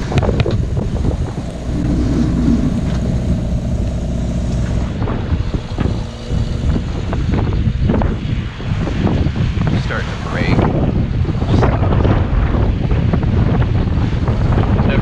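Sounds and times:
waves breaking against boat: 0.0s - 10.2s
wind buffeting microphone: 0.0s - 15.0s.

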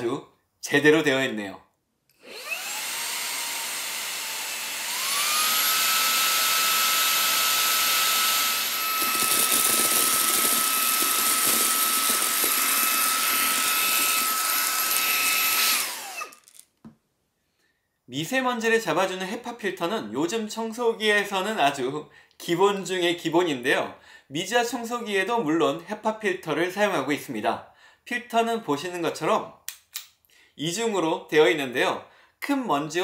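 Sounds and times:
vacuum cleaner motor whine: 2.2s - 16.4s
coffee beans rattling: 8.8s - 16.7s.

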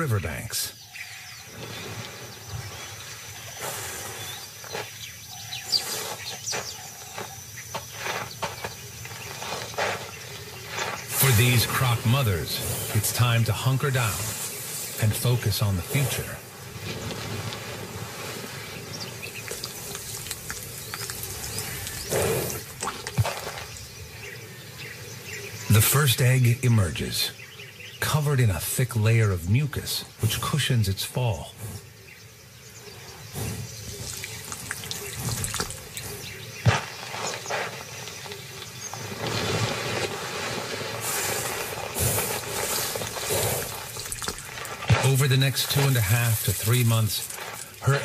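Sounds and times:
birds chirping: 0.0s - 48.0s
claws scraping dry soil: 1.2s - 25.8s, 32.9s - 48.0s
wet slimy squelching: 34.0s - 36.1s, 42.5s - 44.8s.

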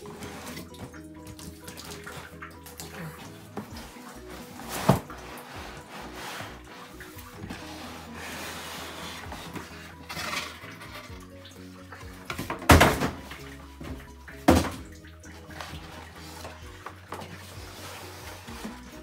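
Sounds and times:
background music: 0.0s - 19.0s
plastic bag and cardboard rustling: 2.0s - 11.1s.

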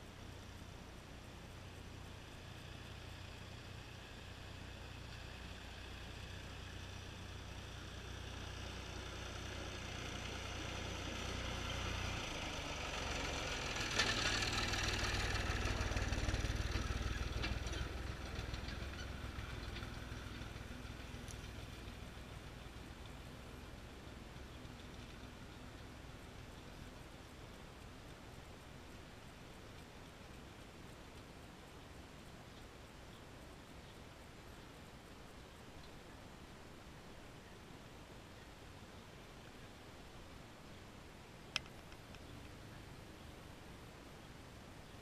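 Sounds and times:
tractor engine running: 0.0s - 30.7s.

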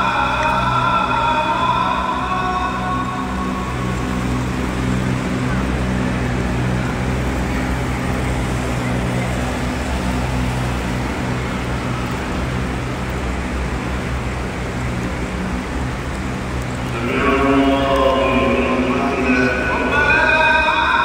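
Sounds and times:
rain and wind on microphone: 0.0s - 21.0s
person speaking: 16.9s - 21.0s.

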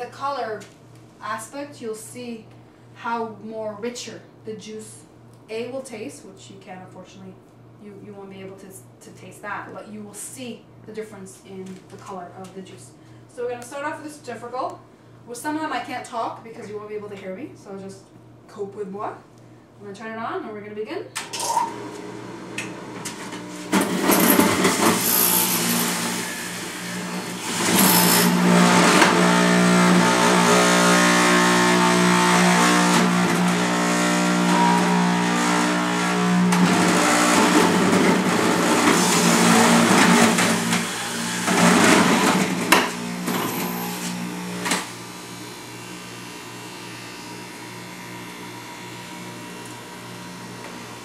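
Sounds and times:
juicer motor spinning: 21.2s - 51.0s
carrots grinding and shredding: 23.1s - 51.0s.

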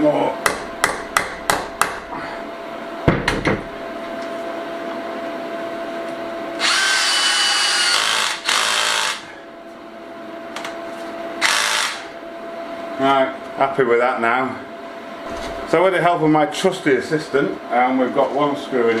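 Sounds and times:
cordless drill whining: 6.6s - 9.3s, 11.4s - 12.1s.

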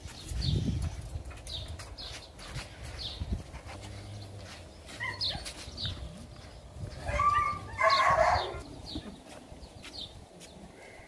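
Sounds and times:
dog barking: 7.1s - 8.6s.

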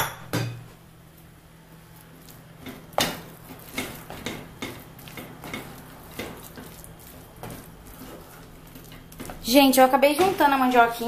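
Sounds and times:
spatula scraping thick puree: 1.9s - 10.8s
spatula knocking against pot: 2.6s - 6.7s.

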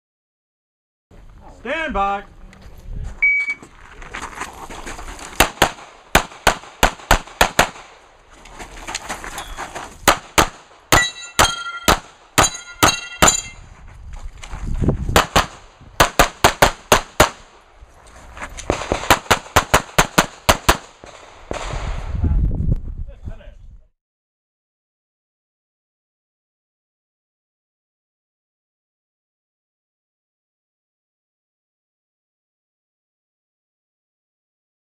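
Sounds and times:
pistol shots: 5.4s - 8.0s, 10.0s - 13.5s, 15.2s - 17.5s, 18.7s - 21.8s
metallic clang of steel targets: 10.9s - 13.6s.

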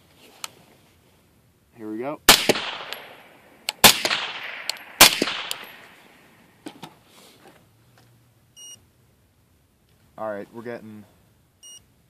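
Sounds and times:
suppressed rifle shot: 2.3s - 6.3s.

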